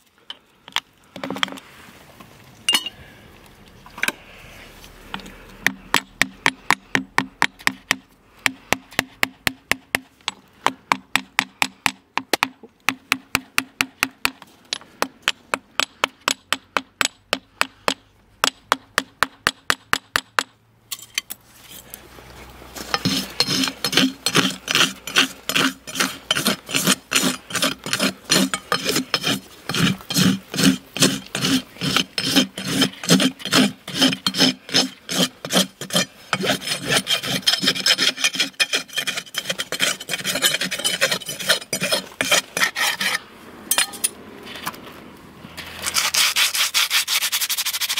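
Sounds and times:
rasp on hoof: 22.8s - 43.3s, 45.6s - 47.9s
sharp tool strokes on hoof: 22.8s - 44.2s.

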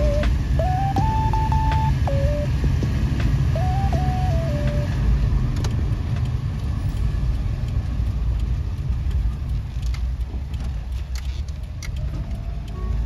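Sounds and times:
van engine rumbling inside cabin: 0.0s - 13.0s
light ticks: 2.8s - 13.0s.

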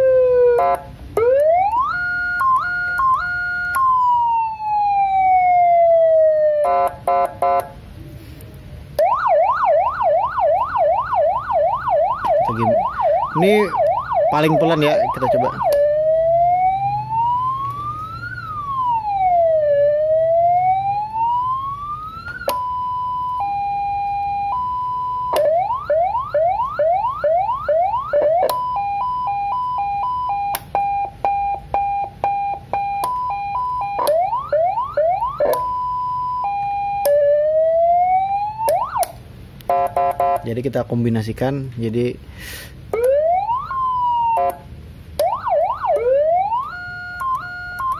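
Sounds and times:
siren yelp sweeps: 0.0s - 7.6s, 9.0s - 39.2s, 42.9s - 47.9s
electronic siren wail: 0.0s - 7.7s, 9.0s - 40.4s, 42.9s - 47.9s
two-tone siren: 0.0s - 7.7s, 9.0s - 40.4s, 42.9s - 47.9s.

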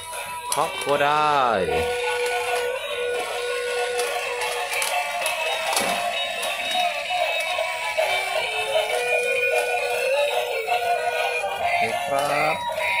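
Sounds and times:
tinny electronic toy tune: 0.0s - 13.0s
synthesized singing: 1.6s - 13.0s.

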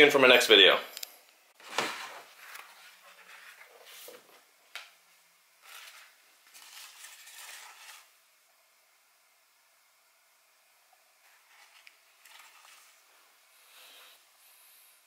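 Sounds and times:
plastic tub rustling and knocking: 1.6s - 2.4s.

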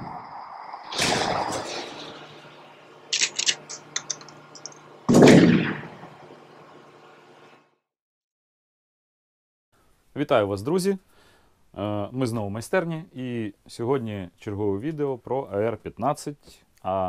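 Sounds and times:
sharp clicks and crackles: 0.9s - 6.1s
heavy boom: 5.1s - 6.0s.

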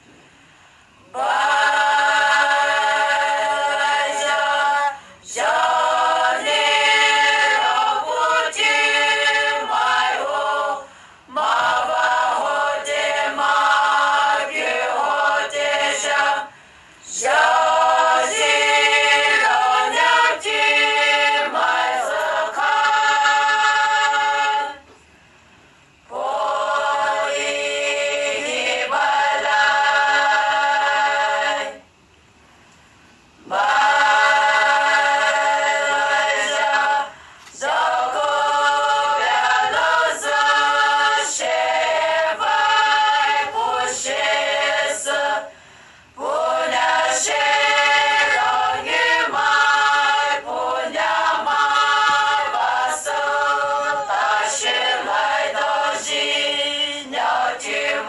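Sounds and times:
group singing without instruments: 0.9s - 25.0s, 25.9s - 31.9s, 33.4s - 58.0s.

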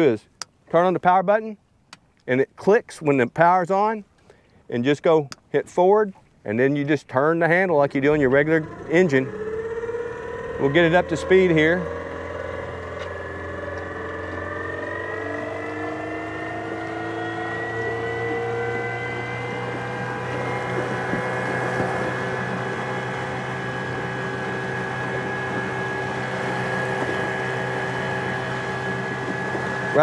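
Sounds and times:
electric outboard motor whine: 7.5s - 30.0s
water rushing in propeller wash: 7.5s - 30.0s.

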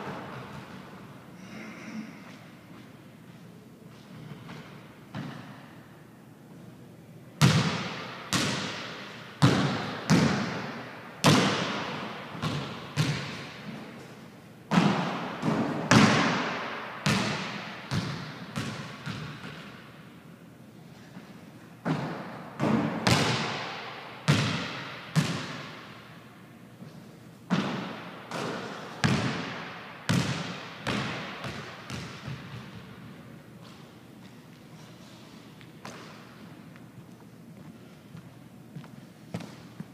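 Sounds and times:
basketball bouncing on hardwood floor: 7.4s - 10.6s, 11.2s - 13.4s, 14.7s - 19.7s, 21.8s - 23.6s, 24.3s - 25.7s, 27.5s - 33.0s.

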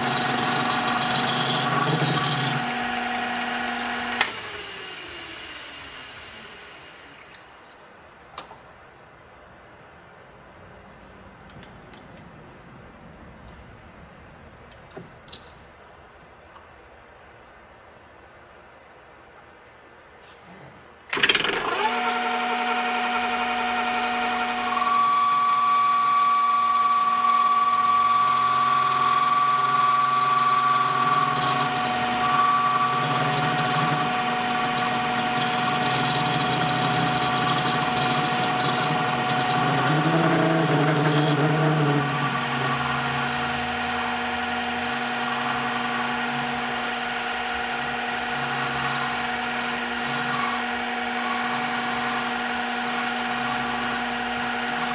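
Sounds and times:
metal lathe motor whine: 0.0s - 7.3s, 21.2s - 54.9s.

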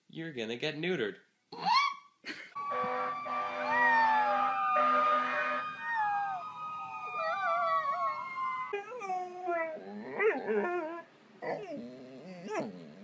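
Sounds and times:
dog howling long note: 2.6s - 9.8s
dog whining howls: 3.6s - 4.9s, 5.8s - 12.8s.

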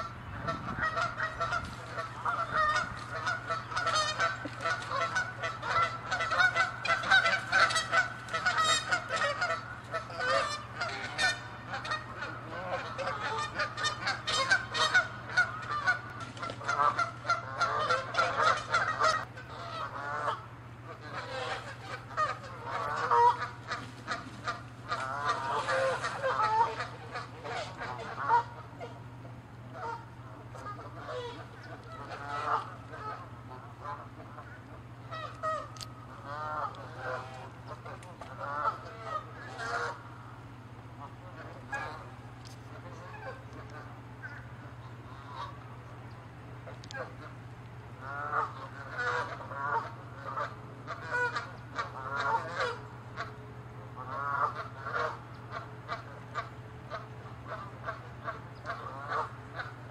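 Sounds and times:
geese honking: 0.0s - 59.9s.

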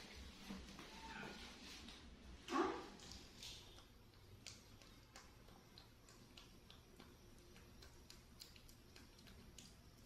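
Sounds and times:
faint chewing clicks: 3.0s - 10.0s.

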